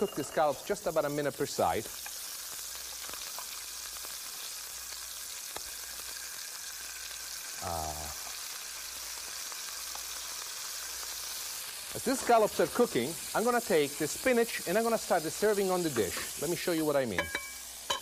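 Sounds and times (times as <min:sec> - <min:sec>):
scallops sizzling in a pan: 0:00.0 - 0:18.0
brief vocal sound: 0:07.6 - 0:08.2.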